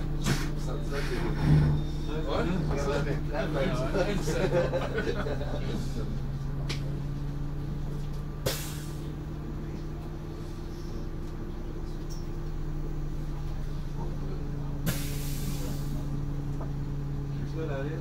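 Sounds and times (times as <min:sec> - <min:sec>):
air brakes hissing: 0:00.0 - 0:02.4, 0:08.4 - 0:09.3, 0:14.8 - 0:16.5
bus engine hum: 0:00.0 - 0:18.0.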